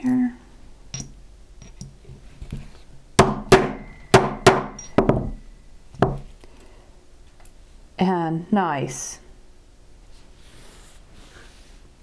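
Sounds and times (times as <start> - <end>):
mallet striking steel punch: 3.2 - 5.4.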